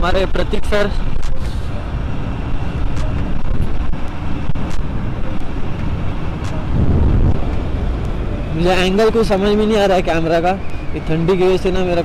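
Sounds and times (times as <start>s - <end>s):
motorcycle engine and road rumble: 0.0s - 12.0s
wind rushing over microphone: 0.0s - 12.0s.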